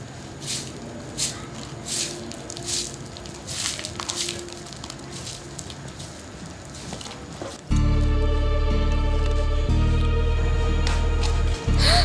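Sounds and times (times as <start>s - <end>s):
broom sweeping concrete: 0.3s - 7.6s.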